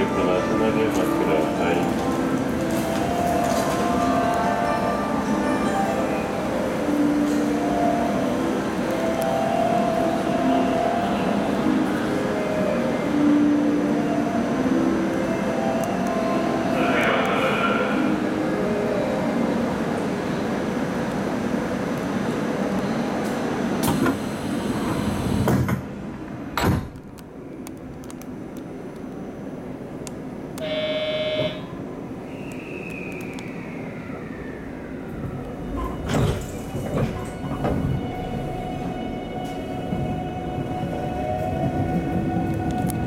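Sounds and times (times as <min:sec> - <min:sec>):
train inverter whine: 0:00.0 - 0:26.4, 0:28.6 - 0:43.0
train door sliding shut: 0:23.2 - 0:25.9, 0:35.8 - 0:38.2
short steady beep: 0:30.6 - 0:31.7
platform noise: 0:30.6 - 0:31.9.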